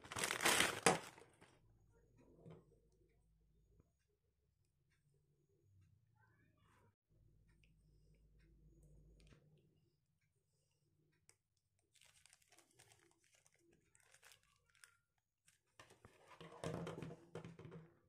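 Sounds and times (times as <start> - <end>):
plastic bag crinkling: 0.0 - 1.5, 11.9 - 15.7.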